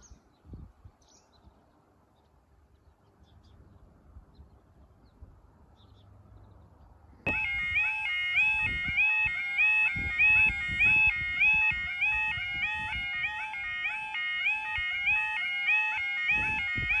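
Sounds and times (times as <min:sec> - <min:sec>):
level crossing alarm: 0:07.3 - 0:17.0.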